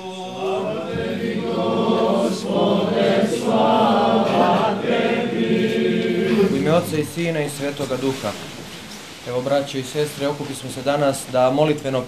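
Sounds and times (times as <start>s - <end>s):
choir chanting: 0.0s - 7.6s.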